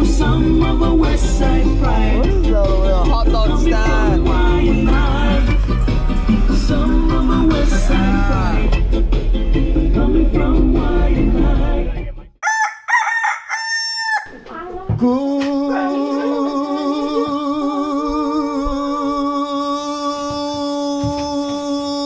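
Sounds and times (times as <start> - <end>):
rooster crowing: 12.4 - 14.5.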